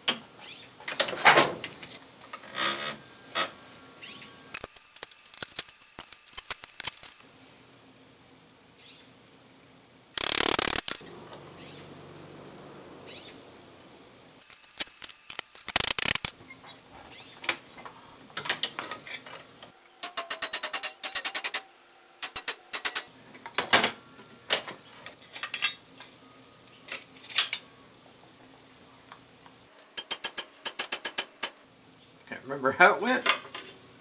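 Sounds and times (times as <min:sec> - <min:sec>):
hammer tapping on metal: 0:20.0 - 0:23.1, 0:30.0 - 0:31.6.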